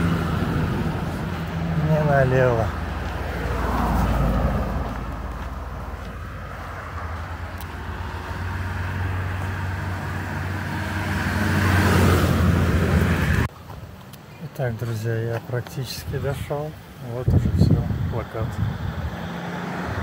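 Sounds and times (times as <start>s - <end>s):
vehicle passing with tyre noise: 0.0s - 13.5s, 17.6s - 20.0s.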